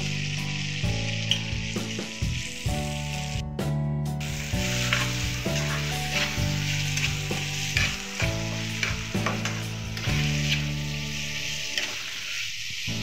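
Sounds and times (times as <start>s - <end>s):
onions sizzling in a pan: 0.0s - 3.5s, 4.2s - 13.0s
background music with low notes: 0.0s - 13.0s
metal spatula scraping a pan: 4.2s - 12.8s.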